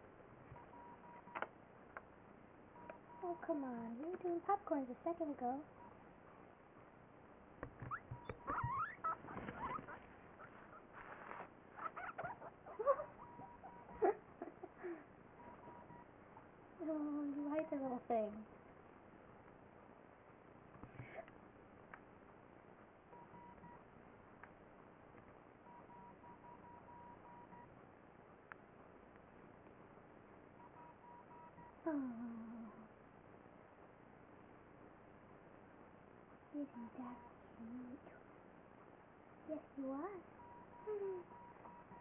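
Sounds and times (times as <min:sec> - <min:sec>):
faint rapid beeping: 0:00.5 - 0:01.5, 0:02.7 - 0:04.4, 0:05.1 - 0:06.2, 0:07.9 - 0:09.8, 0:12.2 - 0:14.2, 0:15.3 - 0:16.3, 0:23.1 - 0:23.9, 0:25.6 - 0:27.8, 0:30.5 - 0:32.9, 0:36.6 - 0:37.9, 0:39.5 - 0:42.0
soft clicks: 0:00.5 - 0:02.1
guinea pig squeaking: 0:07.8 - 0:14.1
rustling on fleece bedding: 0:09.1 - 0:12.2.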